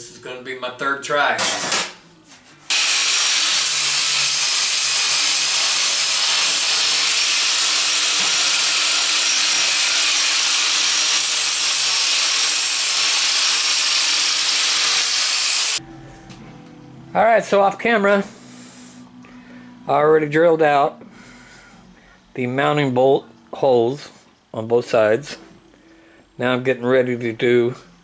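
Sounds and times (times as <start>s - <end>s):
power tool grinding sheet metal: 2.7s - 15.8s.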